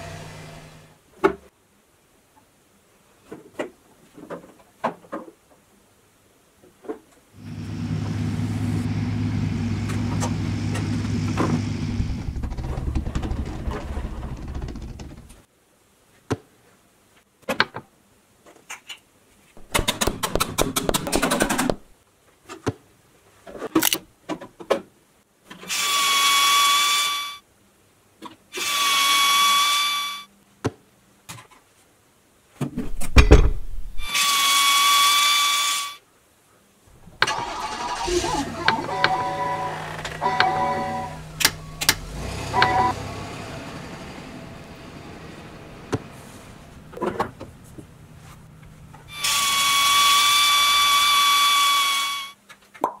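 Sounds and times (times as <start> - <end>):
plastic toy parts clicking: 23.8 - 24.0
long electronic tones: 38.6 - 41.9, 42.5 - 43.0, 49.1 - 52.4.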